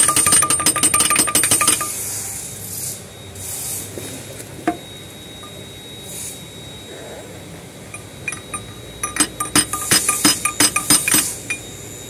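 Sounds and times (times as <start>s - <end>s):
hand tool clicking against metal: 0.0s - 1.9s, 8.0s - 11.6s
faint workshop noise: 0.0s - 12.0s.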